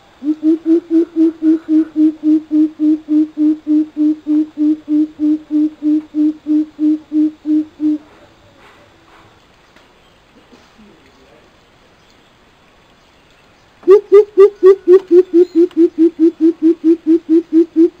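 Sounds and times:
bird giving deep hoots: 0.2s - 8.1s, 13.8s - 18.0s.

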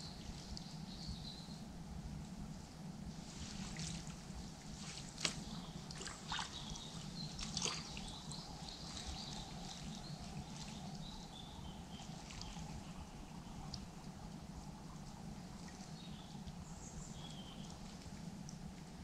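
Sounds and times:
faint birdsong: 0.0s - 19.0s
water splashing and dripping: 3.4s - 11.1s.

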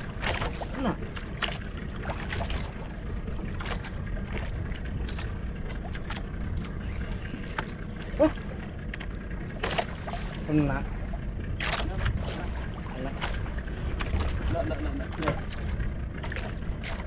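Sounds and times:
low rumble of wind and sea: 0.0s - 17.0s
water lapping against boat hull: 0.0s - 17.0s.

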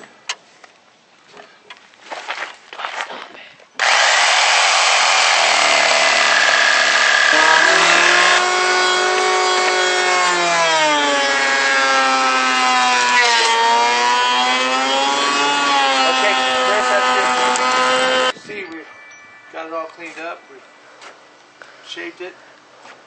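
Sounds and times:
electric hand planer whining: 3.8s - 18.3s
reciprocating saw cutting screws: 3.8s - 18.3s.

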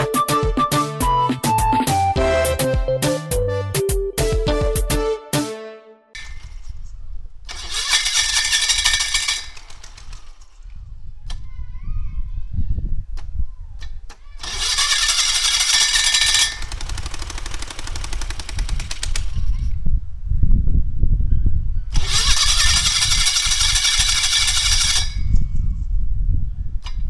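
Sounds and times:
starter cranking engine: 6.2s - 10.8s, 14.1s - 19.7s, 21.9s - 25.4s.

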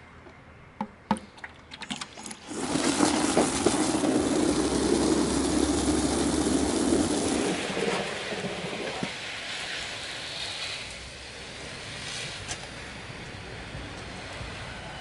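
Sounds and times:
hose spraying water into bucket: 1.7s - 12.7s.

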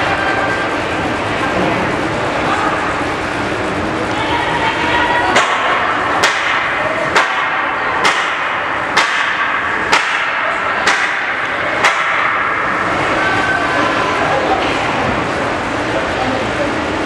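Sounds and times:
sharp impacts: 5.3s - 13.2s.

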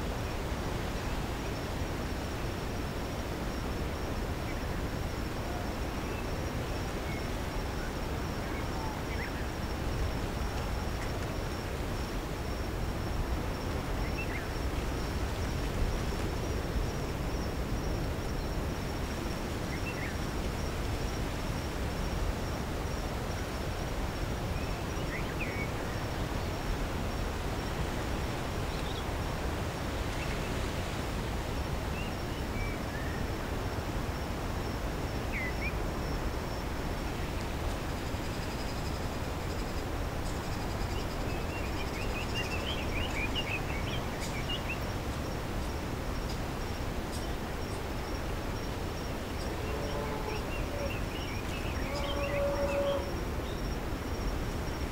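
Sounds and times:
high-pitched insect trill: 37.9s - 54.9s.

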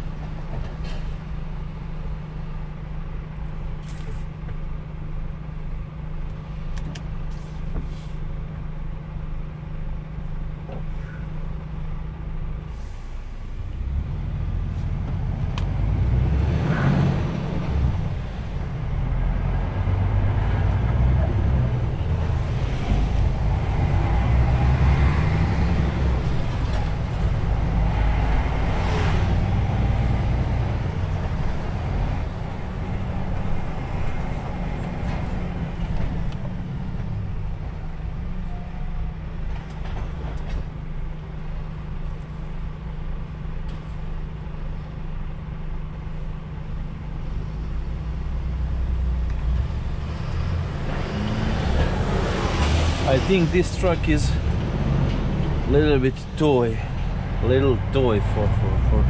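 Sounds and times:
truck diesel engine running: 41.2s - 59.0s.

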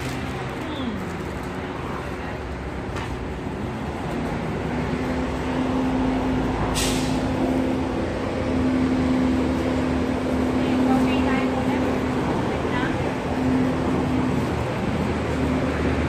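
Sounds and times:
large vehicle engine humming: 0.0s - 16.0s
air release hiss: 6.7s - 7.3s.

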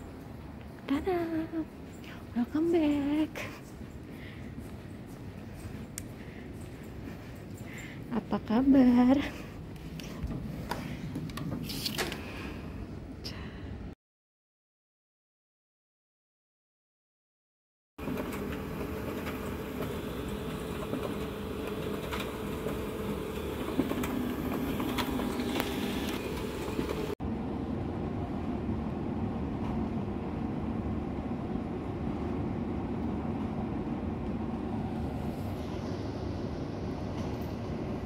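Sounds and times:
indoor low rumble: 0.0s - 14.0s, 18.1s - 38.0s.

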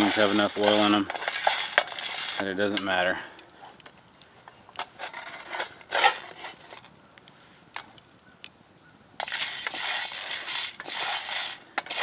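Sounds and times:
coffee beans rattling in metal pot: 0.0s - 2.8s, 9.2s - 12.0s.

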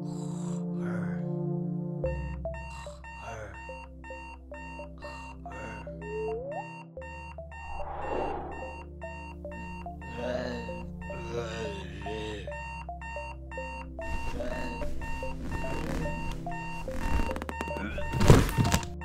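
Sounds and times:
alarm clock beeping: 2.0s - 19.0s
low hum: 7.6s - 8.7s.

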